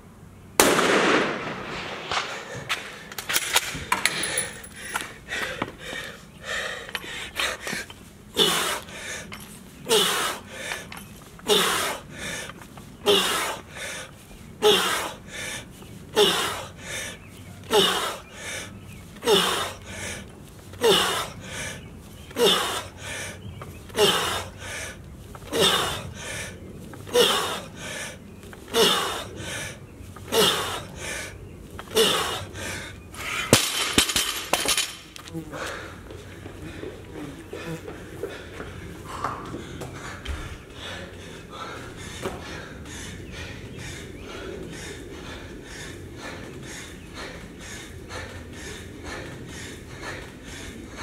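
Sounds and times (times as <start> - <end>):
barbell dropped onto concrete: 33.5 - 35.0.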